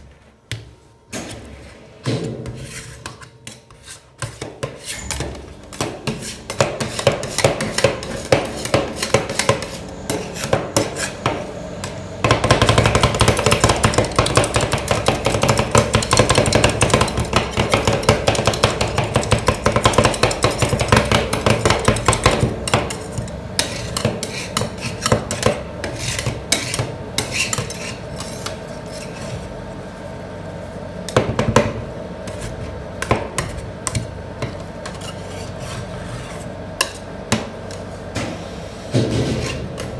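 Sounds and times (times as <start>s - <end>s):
metal spatulas tapping and scraping: 1.2s - 29.3s.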